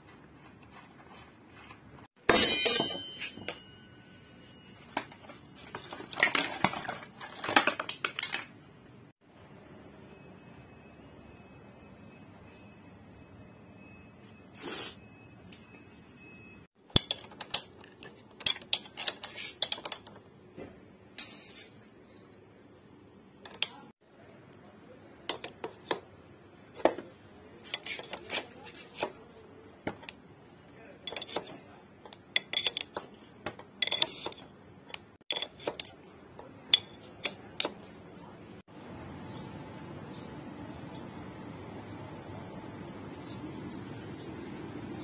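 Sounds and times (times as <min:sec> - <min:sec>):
spanner clinking on metal nut: 0:02.3 - 0:03.7, 0:31.1 - 0:34.4.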